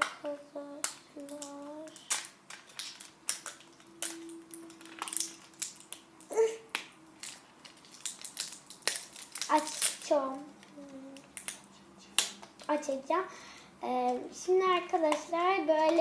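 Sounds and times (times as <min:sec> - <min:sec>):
plastic packaging crinkling: 0:01.2 - 0:12.8.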